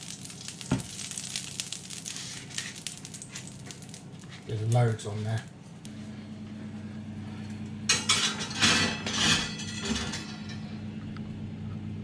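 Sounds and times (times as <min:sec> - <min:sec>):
steady low hum: 0:00.0 - 0:12.0
metal griddle clattering on rack: 0:07.9 - 0:10.8.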